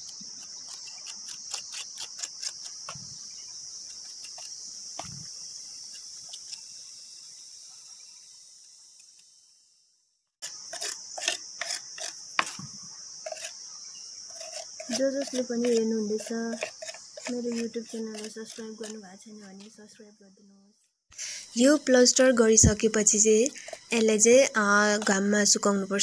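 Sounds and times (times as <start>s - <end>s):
insects chirring: 0.0s - 26.0s
trowel clicking and tapping: 14.3s - 19.0s.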